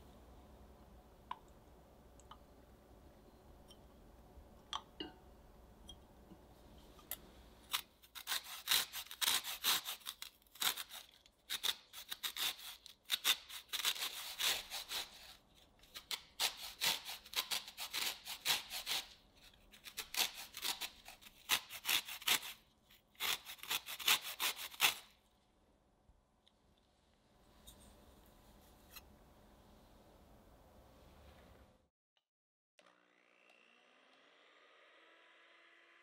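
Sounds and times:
lemon rind scraping on grater: 7.7s - 22.6s, 23.2s - 25.1s.

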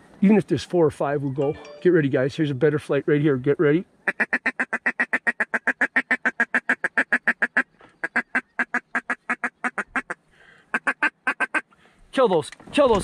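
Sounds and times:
duck call rapid quacks: 4.0s - 11.7s.

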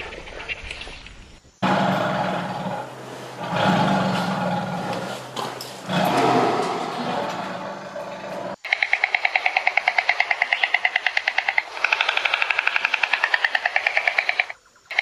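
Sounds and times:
tiger growling and snarling: 1.6s - 8.6s.

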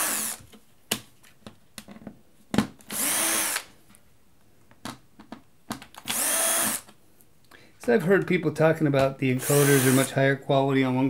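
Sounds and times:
cordless drill motor spinning: 0.0s - 0.4s, 2.9s - 3.7s, 6.0s - 6.9s, 9.4s - 10.1s.

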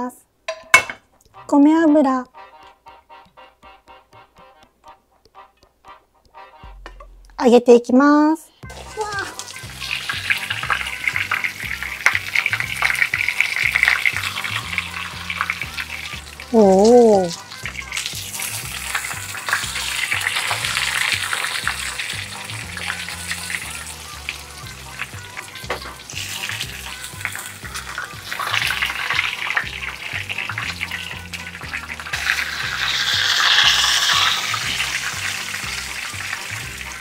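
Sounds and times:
fish frying in oil: 8.6s - 37.0s.

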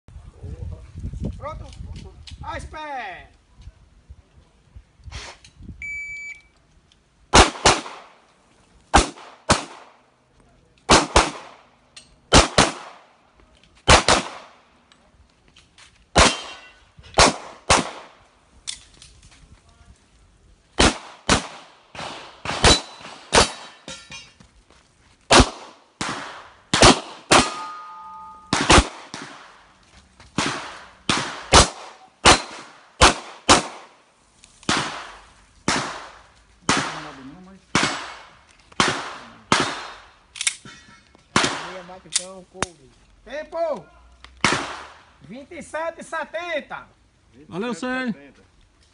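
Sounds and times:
shot timer beep: 5.8s - 6.5s
pistol shots: 7.3s - 8.2s, 8.9s - 10.0s, 10.9s - 11.7s, 12.3s - 13.1s, 13.9s - 14.6s, 16.2s - 18.2s, 20.8s - 23.8s, 25.3s - 29.6s, 30.4s - 33.9s, 34.7s - 40.6s, 41.3s - 41.9s, 44.4s - 45.0s
ringing tone: 27.5s - 28.5s.

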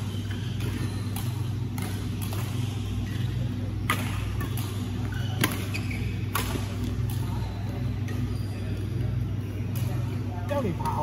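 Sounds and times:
rackets hitting shuttlecock: 0.0s - 8.3s.

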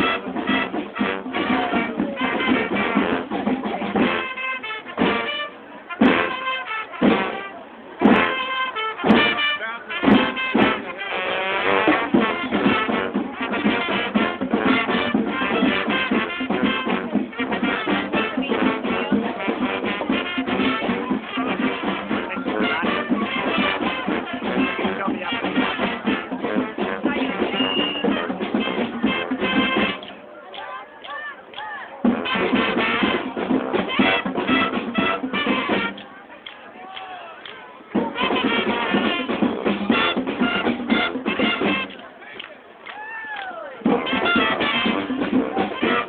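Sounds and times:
brass band playing: 0.0s - 31.3s, 31.9s - 36.6s, 37.4s - 42.3s, 43.8s - 46.0s.

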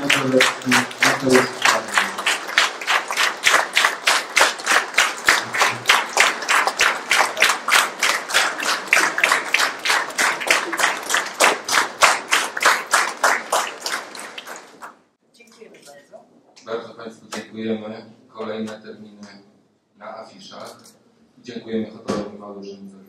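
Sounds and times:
audience clapping in unison: 0.0s - 15.1s.

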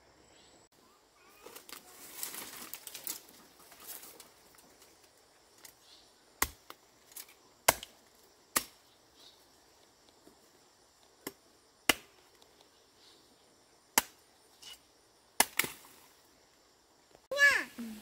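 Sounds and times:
leaves and undergrowth rustling: 0.8s - 10.8s
blade chopping bamboo: 6.4s - 7.9s, 8.5s - 8.8s, 11.2s - 12.2s, 14.0s - 14.8s, 15.4s - 15.8s.

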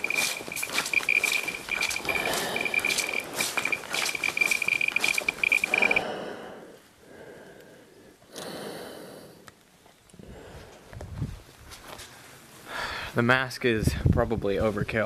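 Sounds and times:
geiger counter beeping: 0.0s - 6.1s
background noise: 0.0s - 15.0s.

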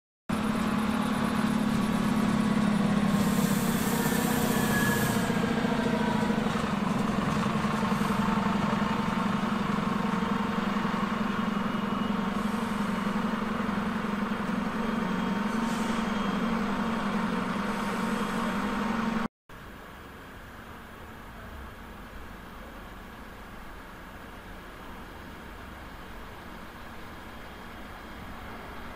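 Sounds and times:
diesel engine drone: 0.3s - 28.9s
air hiss: 3.1s - 5.3s.

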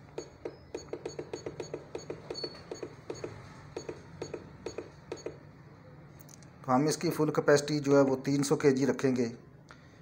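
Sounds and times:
keypad clicks: 0.0s - 5.4s
faint electronic beeps: 0.0s - 6.0s.

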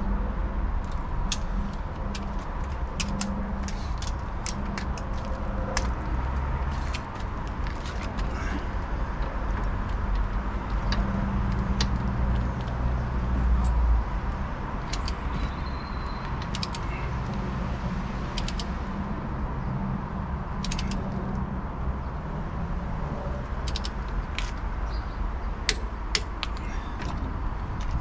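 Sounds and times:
low vehicle rumble: 0.0s - 28.0s
ratchet wrench clicking: 16.3s - 16.9s, 18.4s - 18.7s, 20.6s - 21.1s, 23.6s - 24.1s.

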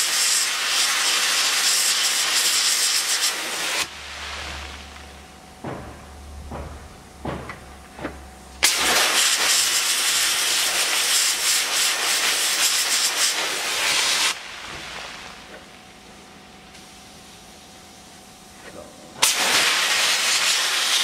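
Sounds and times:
sandblasting hiss: 0.0s - 5.2s, 8.6s - 18.1s, 19.2s - 21.0s.

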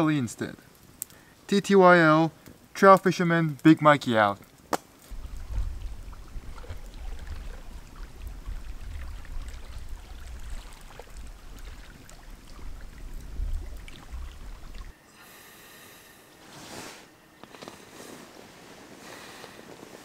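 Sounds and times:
campfire crackling and popping: 0.0s - 15.0s
quiet hiss: 0.0s - 20.0s.

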